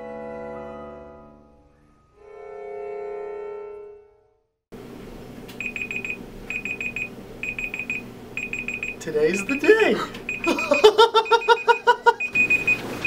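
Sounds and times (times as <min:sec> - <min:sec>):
phone alarm beeping: 0:05.6 - 0:13.0.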